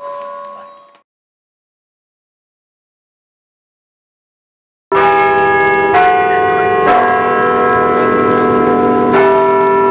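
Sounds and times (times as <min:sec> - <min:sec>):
church bells ringing: 0:04.9 - 0:09.9.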